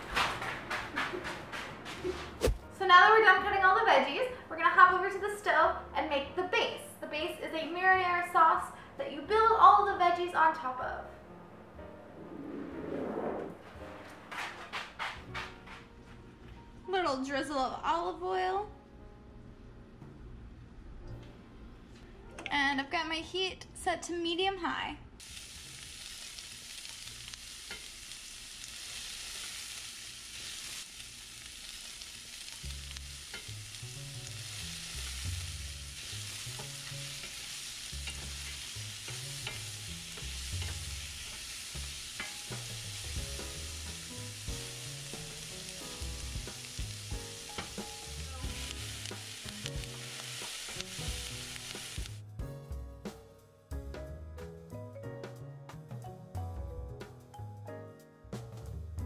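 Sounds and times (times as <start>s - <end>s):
onions sizzling in a skillet: 25.2s - 52.2s.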